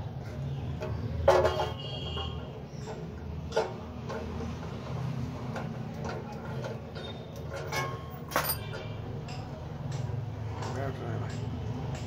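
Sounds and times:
metal parts clicking and knocking: 5.4 - 12.0.

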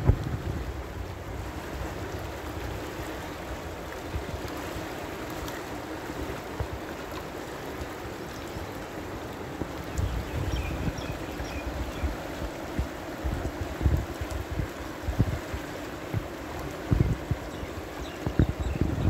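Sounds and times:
wind buffeting microphone: 0.0 - 4.5, 9.4 - 19.0
river water rushing: 0.0 - 19.0.

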